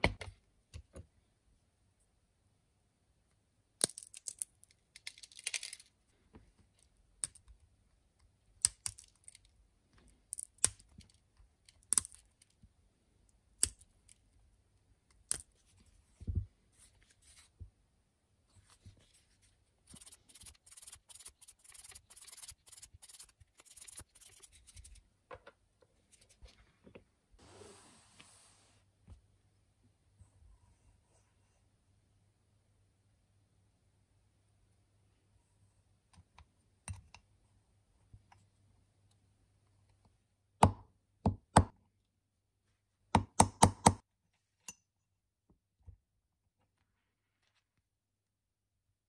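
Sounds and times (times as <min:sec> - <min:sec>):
quick scratching: 0:19.8 - 0:25.0
fingers scraping pen: 0:19.9 - 0:24.9.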